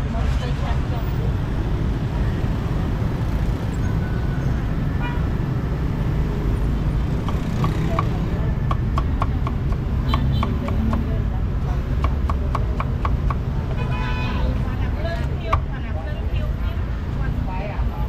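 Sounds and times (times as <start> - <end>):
street traffic rumble: 0.0 - 18.0
vehicle horn toot: 5.0 - 5.3, 13.8 - 14.5
cleaver chopping on wooden block: 7.1 - 11.1, 11.9 - 13.5.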